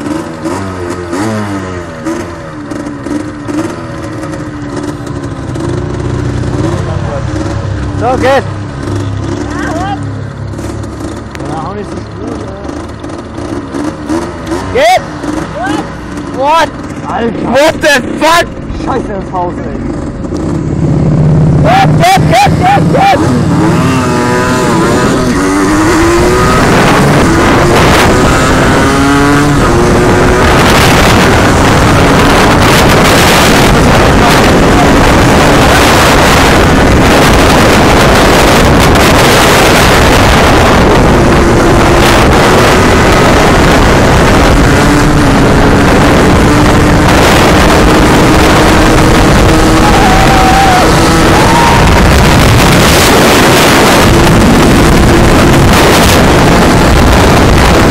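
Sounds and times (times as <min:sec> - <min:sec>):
motorbike engine accelerating: 0:00.0 - 0:57.9
wind buffeting microphone: 0:19.8 - 0:57.9.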